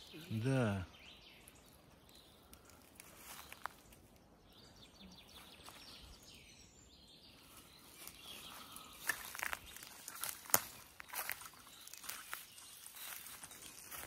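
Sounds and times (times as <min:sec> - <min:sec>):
faint birdsong: 0:00.0 - 0:14.0
footsteps crunching through dry leaves: 0:01.5 - 0:04.2, 0:05.3 - 0:06.3, 0:07.4 - 0:14.0.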